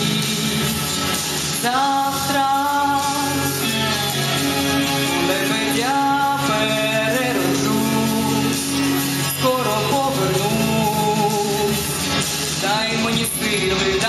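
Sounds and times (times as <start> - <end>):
instrumental accompaniment: 0.0 - 14.0
woman singing: 1.6 - 8.6.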